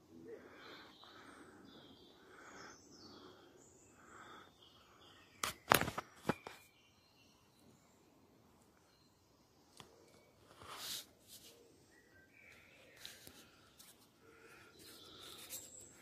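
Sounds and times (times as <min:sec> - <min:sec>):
woodland birds calling: 0:00.0 - 0:05.7, 0:10.1 - 0:16.0.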